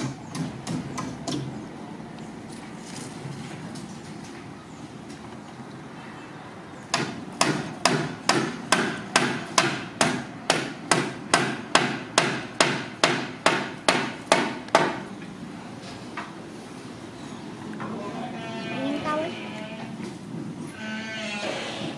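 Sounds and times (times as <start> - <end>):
hammering: 6.9 - 15.1.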